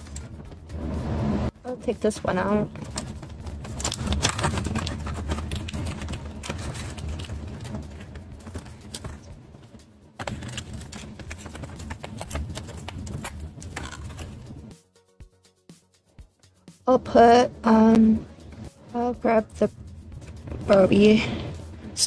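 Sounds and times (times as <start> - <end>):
cardboard and sticker sheet crackling: 2.5 - 14.5.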